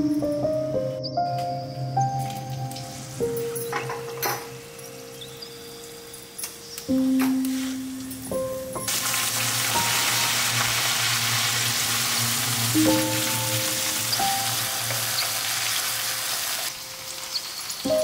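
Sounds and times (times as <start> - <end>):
background music: 0.0 - 18.0
spices sizzling in hot oil: 4.6 - 18.0.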